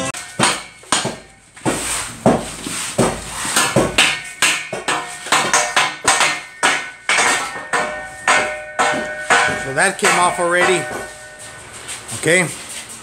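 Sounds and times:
hammer blows on metal: 0:03.0 - 0:11.7.

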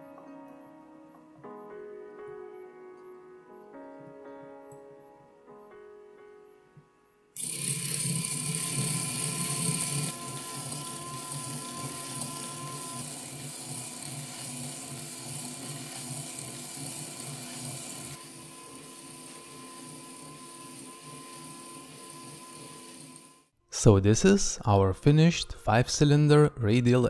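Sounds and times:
model engine whirring clatter: 0:07.4 - 0:23.3.

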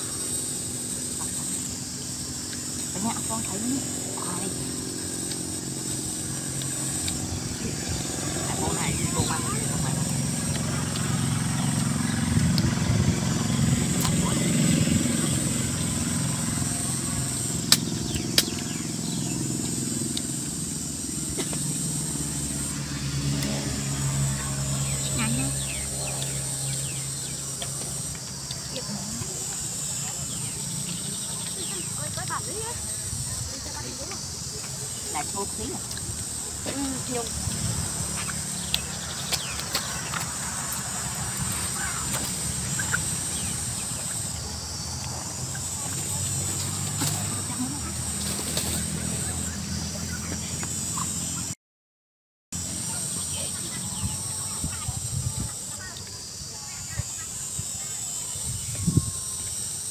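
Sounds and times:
low wind rumble: 0:00.0 - 0:49.8, 0:53.8 - 0:55.7
high insect buzz: 0:00.0 - 0:51.5, 0:52.6 - 0:59.9
low engine drone: 0:00.0 - 0:51.5
chewing clicks: 0:06.5 - 0:07.3.

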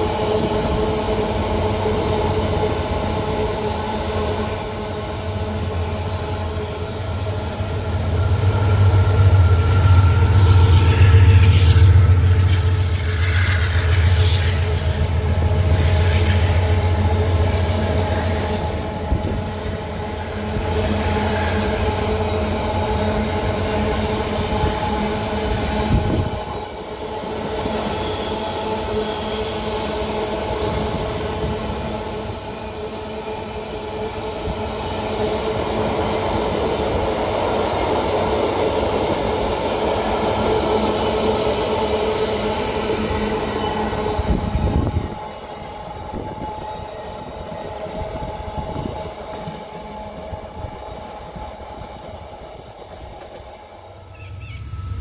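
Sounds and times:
locomotive engine drone: 0:00.0 - 0:55.0
train wheels rolling: 0:00.0 - 0:55.0
wheel squeal: 0:05.8 - 0:06.8, 0:27.2 - 0:29.6.

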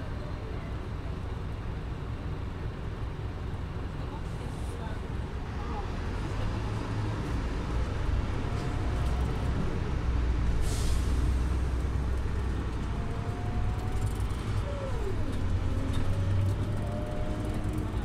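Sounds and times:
bus engine rumble: 0:00.0 - 0:18.0
air brake hiss: 0:10.6 - 0:11.4.

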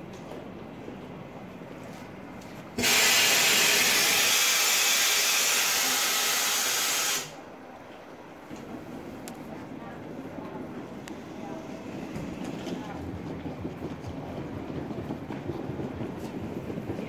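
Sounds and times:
compressed air hissing: 0:02.8 - 0:07.4.

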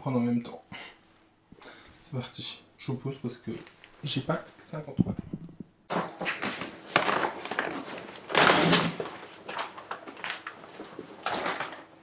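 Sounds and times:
plastic bag crinkling: 0:06.0 - 0:12.0.

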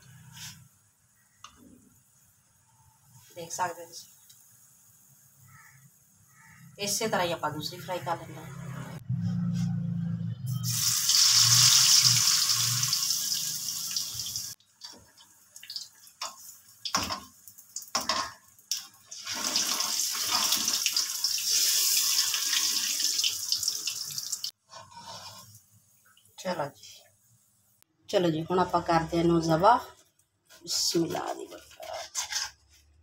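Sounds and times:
patty sizzling in hot oil: 0:10.6 - 0:15.0, 0:15.6 - 0:25.6.

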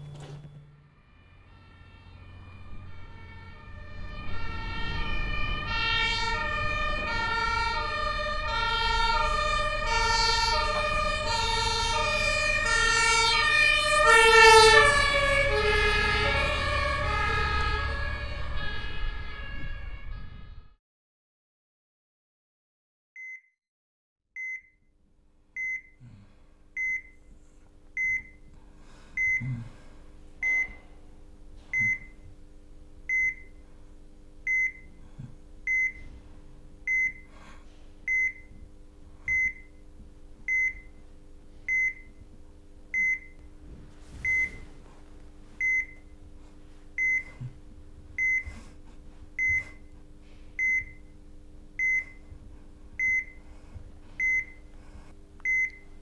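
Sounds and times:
patient monitor beeping: 0:00.0 - 0:00.8, 0:25.6 - 0:26.0, 0:26.8 - 0:27.3, 0:28.0 - 0:28.5, 0:29.2 - 0:29.7, 0:30.4 - 0:30.9, 0:31.7 - 0:32.2, 0:33.1 - 0:33.6, 0:34.4 - 0:35.0, 0:35.6 - 0:36.1, 0:36.9 - 0:37.3, 0:38.1 - 0:38.6, 0:39.3 - 0:39.8, 0:40.5 - 0:41.0, 0:41.7 - 0:42.2, 0:42.9 - 0:43.5, 0:44.2 - 0:44.8, 0:45.6 - 0:46.2, 0:47.0 - 0:47.6, 0:48.2 - 0:48.6, 0:49.4 - 0:50.0, 0:50.6 - 0:51.2, 0:51.8 - 0:52.3, 0:53.0 - 0:53.4, 0:54.2 - 0:54.7, 0:55.4 - 0:56.0
low electrical hum: 0:24.9 - 0:56.0.

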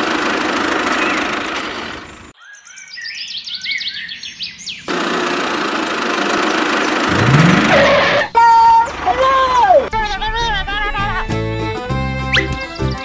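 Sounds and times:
birds chirping: 0:02.3 - 0:04.9, 0:06.4 - 0:08.3, 0:12.3 - 0:13.0
hissy engine-like noise: 0:04.9 - 0:08.3.

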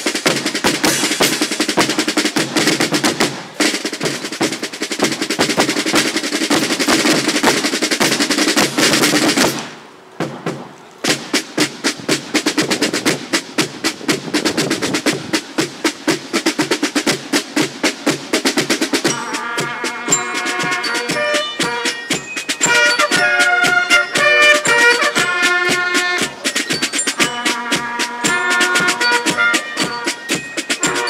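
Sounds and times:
snare drums playing a cadence: 0:00.0 - 0:31.0
brass sustained notes: 0:19.1 - 0:31.0.

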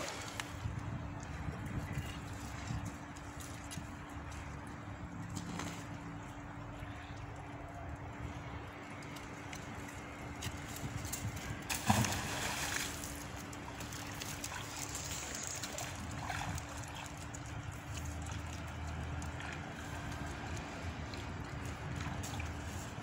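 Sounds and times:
water sloshing: 0:08.8 - 0:23.0
magnet splashing into river: 0:11.7 - 0:13.2.

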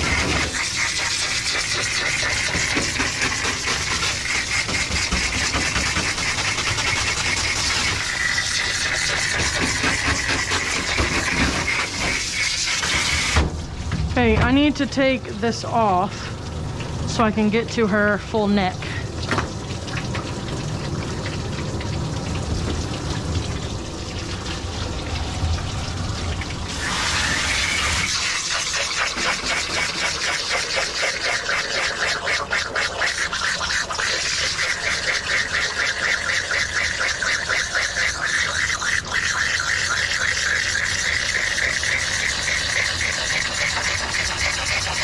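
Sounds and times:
hose water spraying into fur: 0:00.0 - 0:13.4, 0:26.6 - 0:45.0.

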